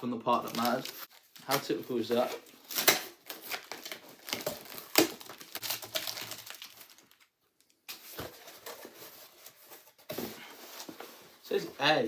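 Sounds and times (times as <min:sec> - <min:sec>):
tape and cardboard rustling: 0:00.4 - 0:12.0
tape ripping off cardboard: 0:02.6 - 0:07.1.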